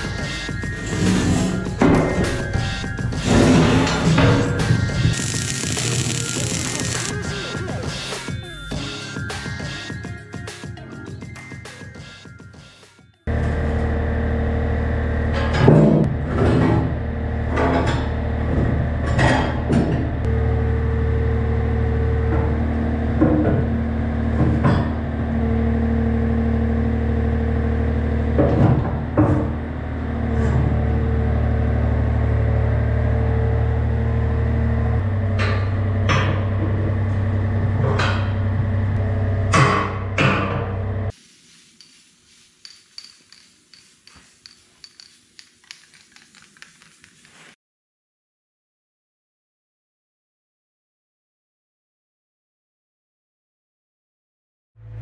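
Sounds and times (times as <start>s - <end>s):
hydraulic whine: 0.0s - 9.2s.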